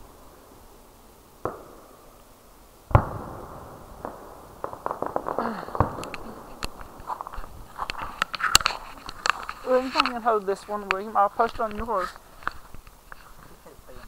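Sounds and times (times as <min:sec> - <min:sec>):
firework bangs: 0:00.0 - 0:13.6
crackling firework pops: 0:01.3 - 0:14.0
echoing firework boom: 0:02.9 - 0:07.8.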